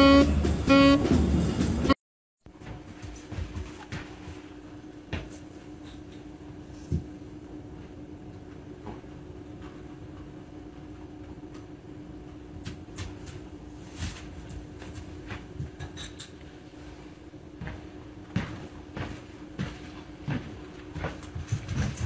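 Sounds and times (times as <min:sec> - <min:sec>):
clicks and knocks on tile floor: 0:21.1 - 0:22.0.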